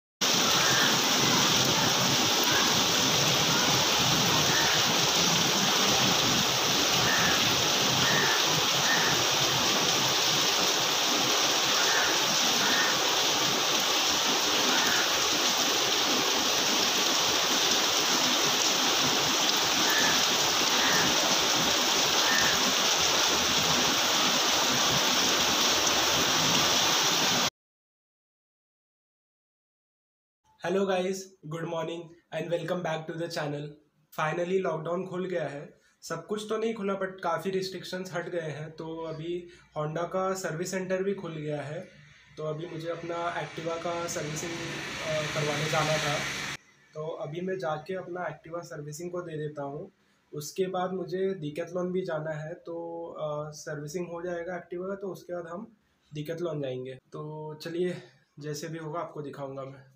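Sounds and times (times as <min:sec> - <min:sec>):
heavy rain pouring: 0:00.2 - 0:27.5, 0:42.0 - 0:46.6.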